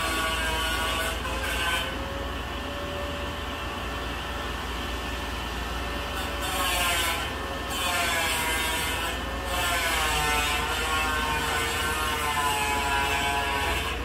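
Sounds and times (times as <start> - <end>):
rasping cutting or grinding: 0.0 - 2.0, 6.2 - 14.0.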